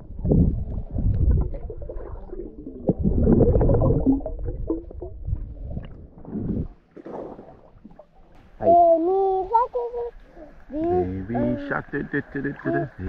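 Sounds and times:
underwater rumbling and gurgling: 0.0 - 8.4.

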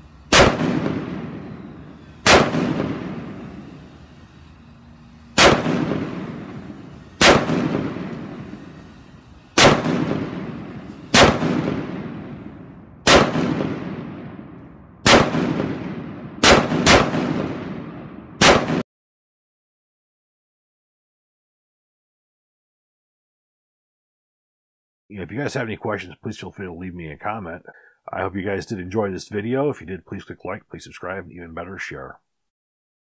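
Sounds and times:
rifle shots: 0.3 - 3.8, 5.4 - 8.7, 9.6 - 18.8.

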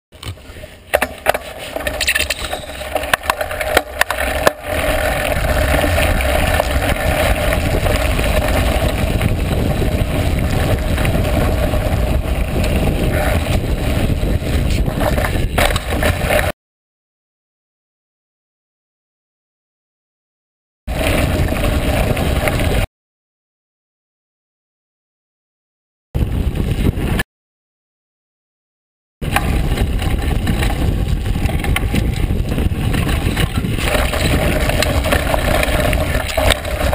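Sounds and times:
bike knocks and rattles: 0.2 - 16.5, 29.2 - 36.9
wind and tyre rumble: 0.2 - 16.6, 20.9 - 22.9, 26.2 - 27.2, 29.2 - 36.9.

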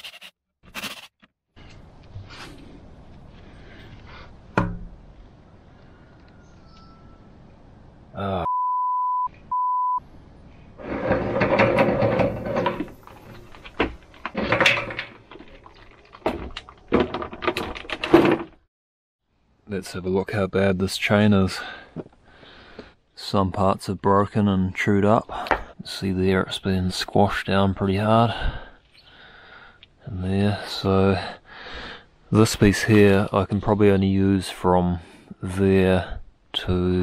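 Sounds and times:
censor bleep: 8.4 - 10.0
scraping and clunking metal plate: 10.8 - 18.6.

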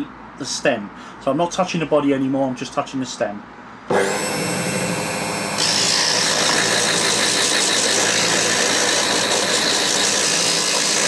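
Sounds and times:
electric lathe motor whine: 3.9 - 11.0.

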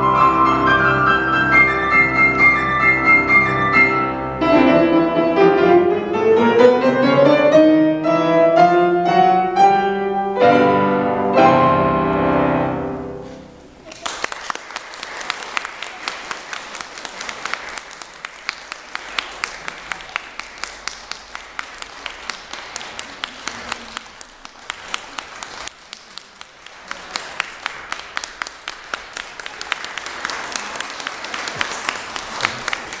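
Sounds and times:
audience applauding: 13.8 - 33.0.

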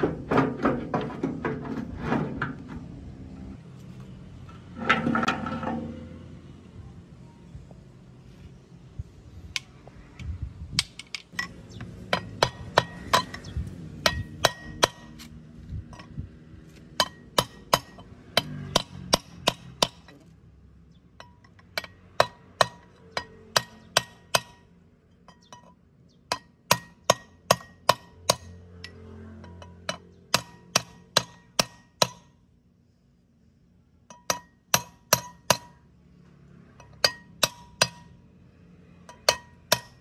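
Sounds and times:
hammer striking metal: 10.8 - 13.4, 14.0 - 15.3, 16.9 - 20.2, 21.2 - 24.7, 26.3 - 32.4, 34.1 - 35.8, 36.8 - 38.2, 39.0 - 40.0.

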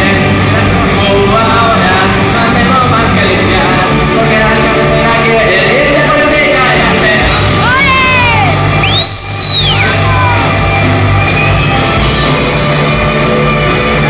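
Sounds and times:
man singing: 0.0 - 10.4
bass guitar: 0.0 - 14.0
drum kit: 0.0 - 14.0
electric guitars: 0.0 - 14.0.

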